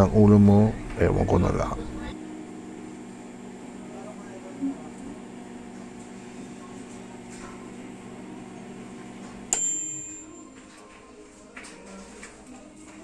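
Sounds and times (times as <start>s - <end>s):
microwave oven humming: 0.0s - 11.7s
timer bell ding: 9.5s - 10.6s.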